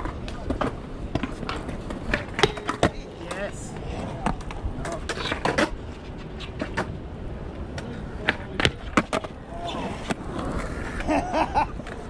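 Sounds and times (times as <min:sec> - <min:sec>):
skateboard wheels rolling on concrete: 0:00.0 - 0:12.0
skateboards clacking on ground: 0:00.0 - 0:12.0.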